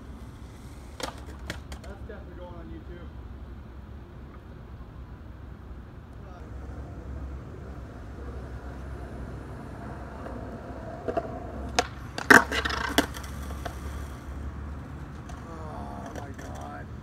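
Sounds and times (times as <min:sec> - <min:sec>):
skateboard rolling on concrete: 0:00.0 - 0:17.0
skateboard clacking on concrete: 0:00.1 - 0:02.1, 0:09.4 - 0:17.0.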